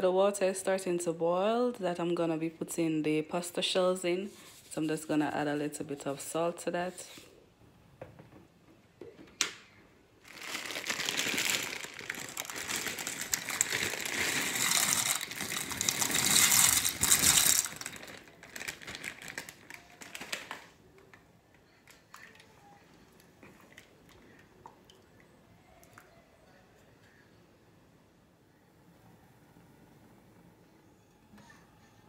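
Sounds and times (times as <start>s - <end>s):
plastic bag crinkling: 10.2s - 20.8s
pasta poured into water: 10.3s - 20.2s.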